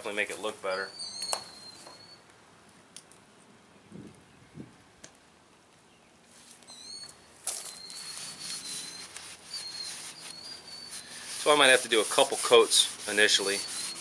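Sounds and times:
whistled bird notes: 0:00.6 - 0:02.2, 0:06.7 - 0:11.5, 0:13.3 - 0:14.0
cloth rustling and rubbing: 0:07.6 - 0:14.0.

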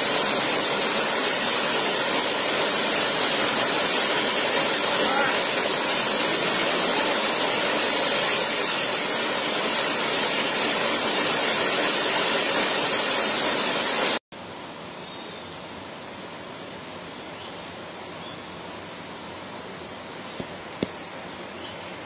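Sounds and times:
waterfall rushing: 0:00.0 - 0:14.2
quiet steady hiss: 0:14.4 - 0:22.0.

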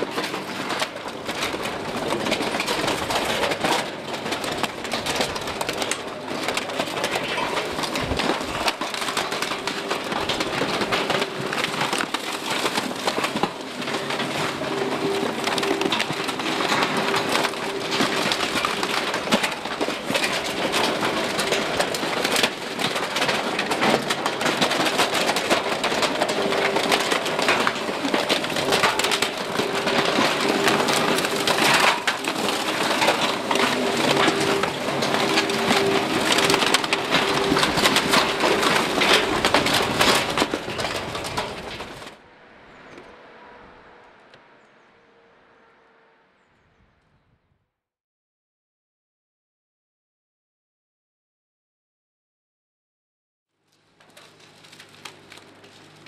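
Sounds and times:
garbage crackling and crunching: 0:00.0 - 0:42.2, 0:53.6 - 0:56.0
machine hum: 0:00.0 - 0:46.6.

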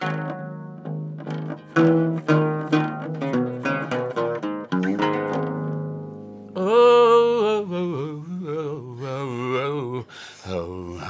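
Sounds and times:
oud plucked notes ringing: 0:00.0 - 0:07.4
person singing wavering melody: 0:06.5 - 0:11.0.

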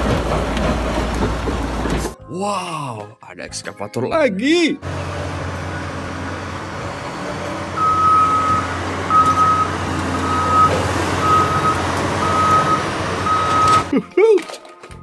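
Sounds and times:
excavator diesel engine running: 0:00.0 - 0:02.2, 0:04.8 - 0:13.9
warning alarm beeps: 0:07.8 - 0:13.9.

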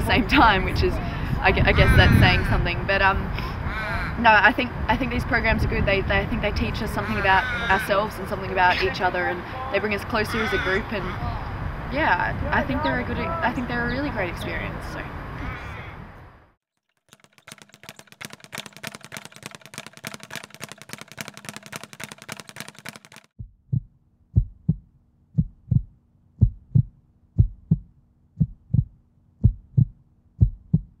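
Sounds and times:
fast even ticking: 0:16.8 - 0:23.3
heartbeat thumps: 0:23.4 - 0:31.0.

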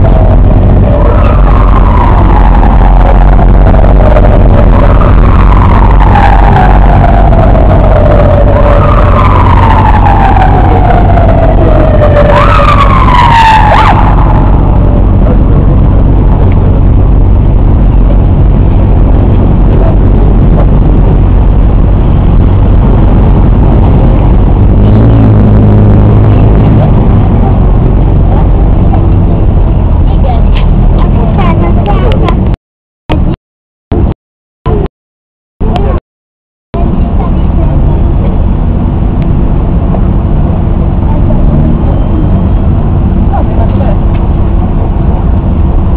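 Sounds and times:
emergency siren wailing: 0:00.0 - 0:29.4
low drone: 0:00.0 - 0:32.2
loud steady rumble: 0:00.0 - 0:34.9, 0:35.6 - 0:36.0, 0:36.7 - 0:45.9.

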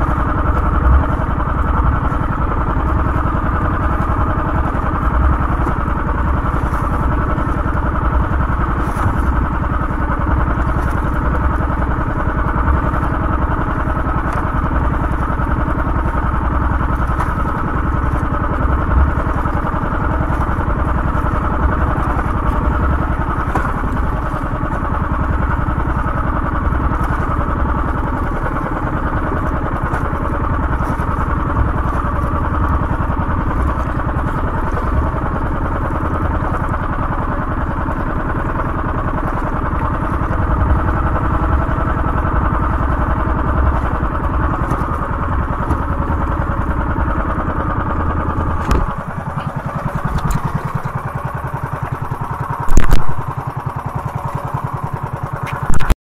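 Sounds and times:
small boat engine throbbing: 0:00.0 - 0:56.0
loud thump: 0:48.6 - 0:48.9.

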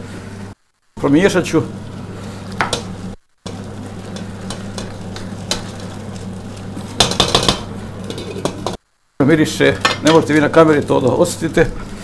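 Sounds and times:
vegetables sizzling in a frying pan: 0:01.0 - 0:12.0
spoon scraping a pan: 0:02.3 - 0:08.8.

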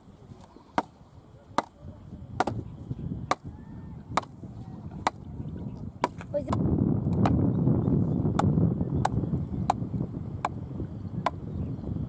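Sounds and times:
wooden club pounding bamboo post: 0:00.8 - 0:01.0, 0:01.6 - 0:01.8, 0:02.4 - 0:02.7, 0:03.3 - 0:03.5, 0:04.1 - 0:05.3, 0:06.0 - 0:07.4, 0:08.3 - 0:09.8, 0:10.4 - 0:10.6.

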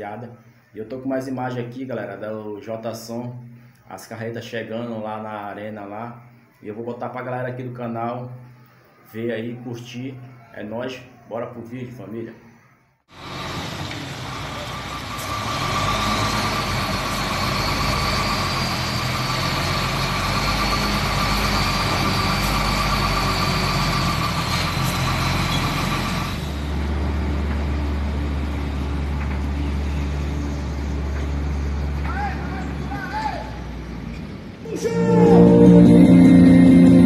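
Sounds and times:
truck diesel engine: 0:13.1 - 0:37.0
steady high whine: 0:34.7 - 0:37.0.

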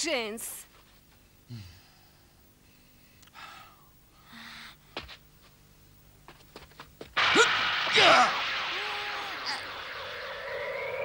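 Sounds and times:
quiet steady hum: 0:00.0 - 0:11.0
faint breathing: 0:01.2 - 0:05.0.

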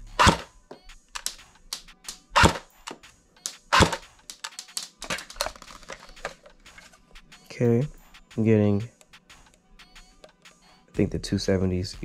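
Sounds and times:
airsoft gun shots: 0:00.2 - 0:00.5, 0:02.1 - 0:02.7, 0:03.6 - 0:04.2
handling clicks and taps: 0:00.3 - 0:07.6.

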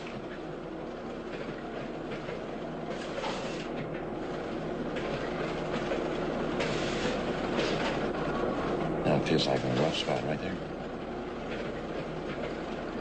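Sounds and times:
factory machinery rumble: 0:00.0 - 0:13.0.

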